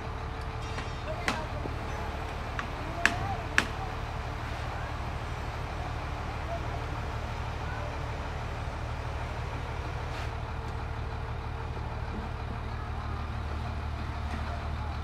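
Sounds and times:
engine low pulsing drone: 0.0s - 15.0s.

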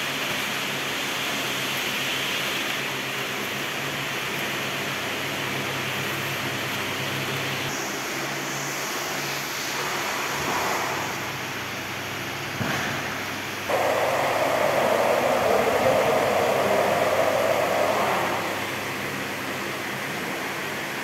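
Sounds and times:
low even hum: 9.5s - 21.0s
steady rushing noise: 13.0s - 21.0s.

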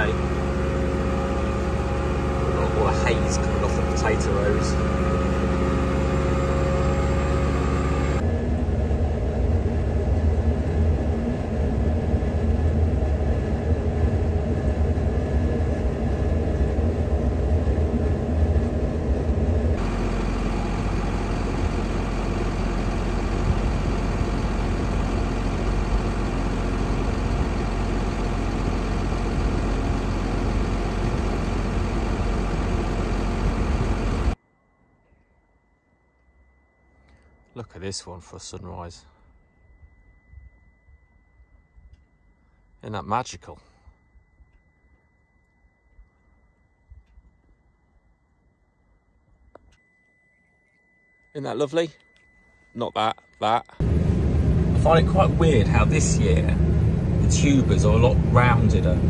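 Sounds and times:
diesel tractor engine: 0.0s - 34.4s, 52.9s - 59.0s.

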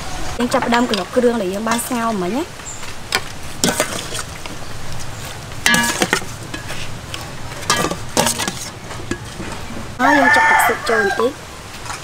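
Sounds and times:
metal spoon scraping bowl: 5.6s - 7.0s, 7.6s - 9.4s.

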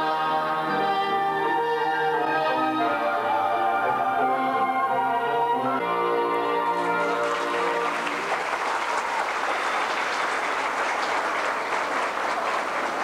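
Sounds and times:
orchestral music: 0.1s - 8.5s
audience applause: 6.6s - 13.0s.

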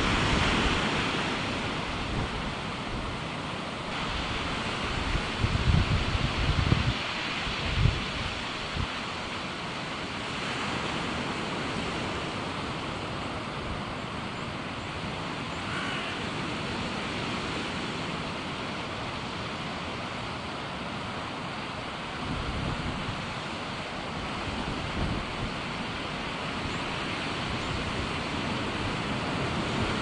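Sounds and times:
wind on microphone: 0.0s - 3.2s, 3.9s - 9.3s, 22.2s - 23.5s, 24.1s - 30.0s
surf rushing into cove: 0.0s - 30.0s.

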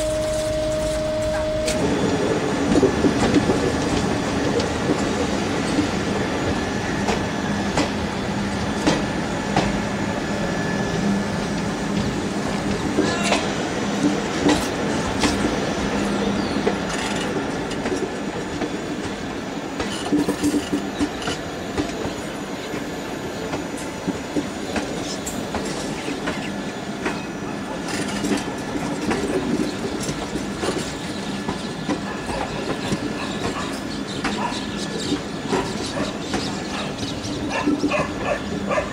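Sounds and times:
train rumbling: 0.0s - 38.9s
wheels clacking over rail joints: 11.4s - 22.9s, 23.5s - 38.9s.

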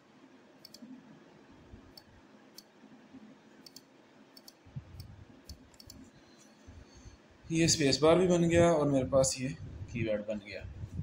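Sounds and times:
mouse buttons clicking: 3.6s - 6.0s.

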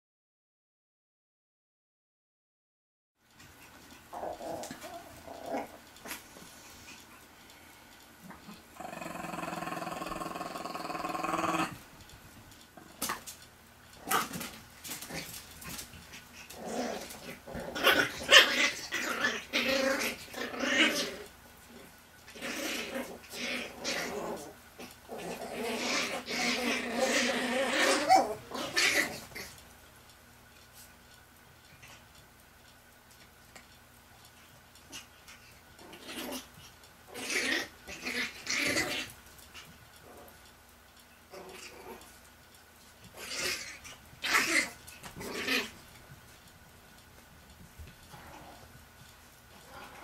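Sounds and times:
puppies growling and yipping: 3.3s - 12.0s, 14.0s - 29.6s, 34.5s - 40.4s, 41.1s - 42.3s, 43.0s - 46.3s, 47.8s - 50.0s.

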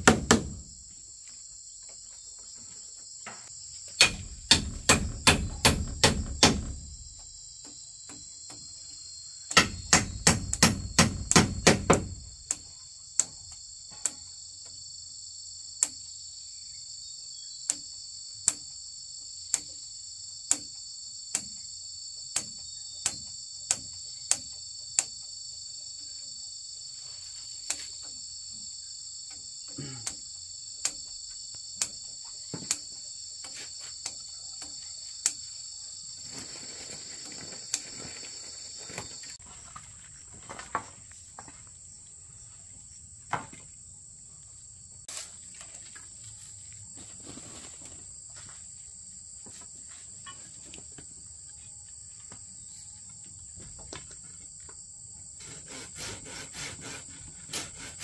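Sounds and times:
insect chorus: 0.0s - 58.0s
hammer blows on wood: 4.0s - 7.2s, 9.5s - 12.5s.

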